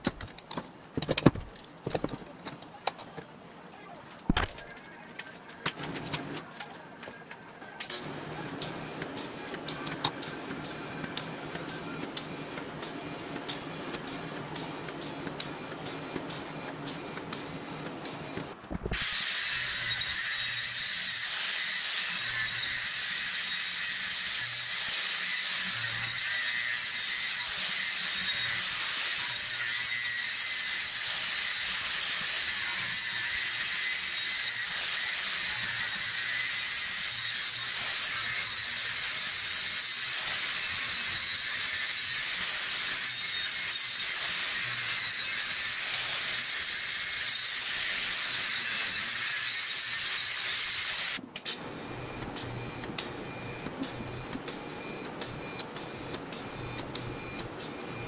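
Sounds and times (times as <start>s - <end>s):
angle grinder grinding steel: 19.0s - 51.2s.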